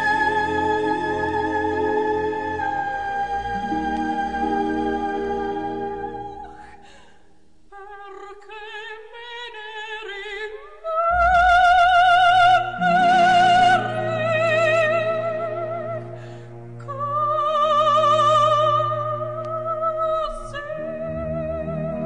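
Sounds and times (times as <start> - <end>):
musical accompaniment: 0.0 - 6.7, 11.0 - 22.0.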